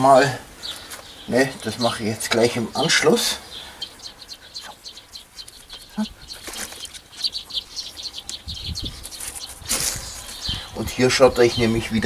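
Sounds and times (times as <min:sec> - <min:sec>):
birds chirping: 0:00.0 - 0:12.0
hands patting soil: 0:04.6 - 0:07.6, 0:08.2 - 0:10.6.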